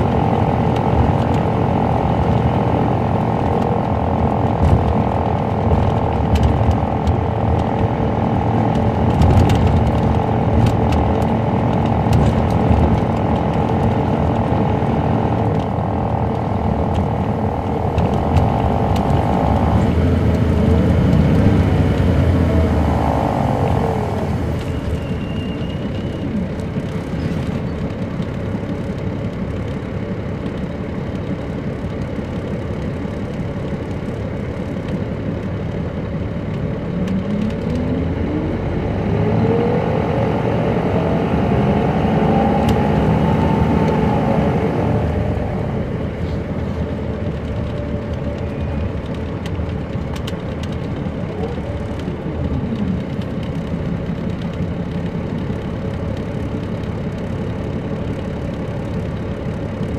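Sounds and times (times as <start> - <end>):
rising whine: 0.0 - 27.2, 36.5 - 49.4
diesel engine running: 0.0 - 59.9
falling whine: 1.8 - 26.7.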